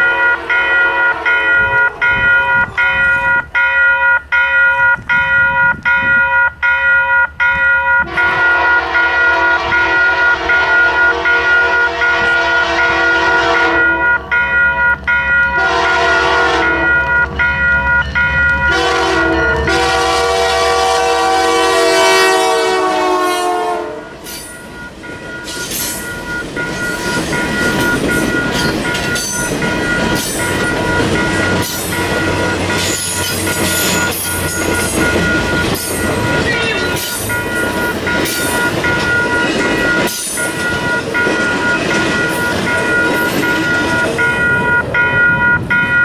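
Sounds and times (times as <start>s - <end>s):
diesel locomotive horn blasts: 0.0s - 3.4s, 7.9s - 14.4s, 15.5s - 17.4s, 18.4s - 24.3s
train cars rumbling: 0.0s - 46.0s
train wheel clatter: 24.1s - 46.0s.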